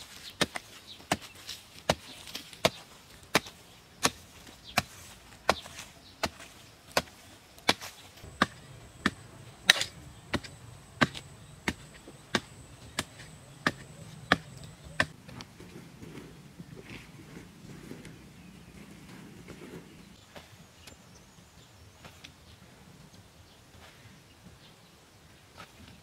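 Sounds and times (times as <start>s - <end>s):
hoe chopping stony ground: 0.0s - 20.6s
soft scraping of loose soil: 0.0s - 26.0s.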